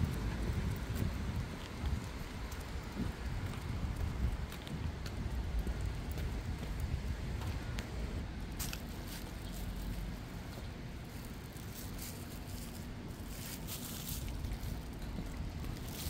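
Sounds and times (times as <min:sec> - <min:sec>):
low rumble of traffic: 0:00.0 - 0:16.0
footsteps on wet paving: 0:00.1 - 0:07.9.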